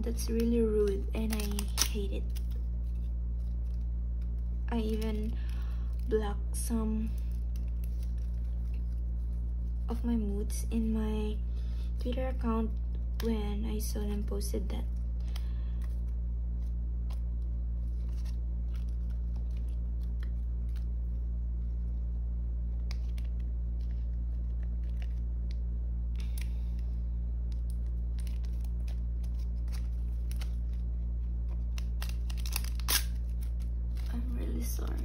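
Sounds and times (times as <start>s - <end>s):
plastic sleeves crinkling: 0.0s - 10.1s, 11.9s - 21.3s, 22.6s - 35.0s
low hum: 0.0s - 35.0s.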